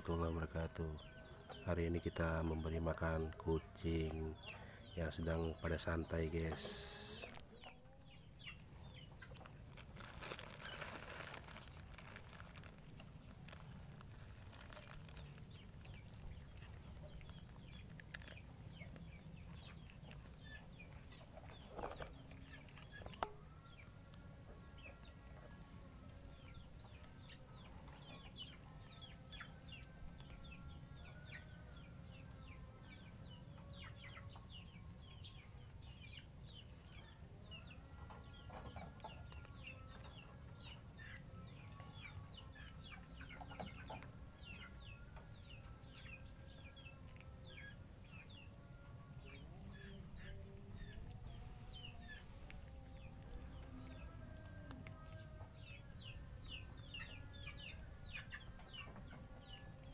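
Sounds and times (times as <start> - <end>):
chickens clucking: 49.2 - 59.9.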